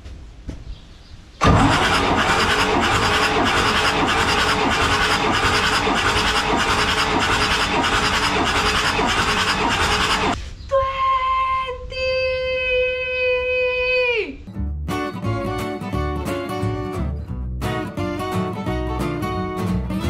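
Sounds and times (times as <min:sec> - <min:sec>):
diesel engine cranking over: 0:01.4 - 0:10.4.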